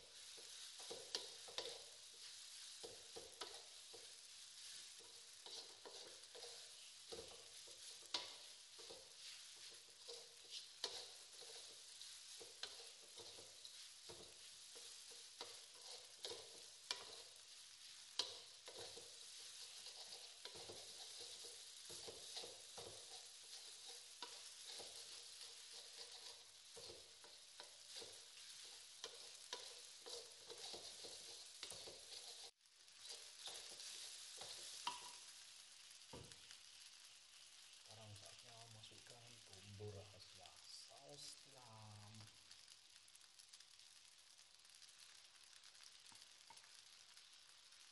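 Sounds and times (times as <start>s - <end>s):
spatula clacking on a wok: 0.0s - 35.5s, 44.8s - 47.2s
spatula scraping a wok: 0.0s - 39.6s, 44.6s - 47.9s
rice sizzling in a wok: 0.0s - 47.9s.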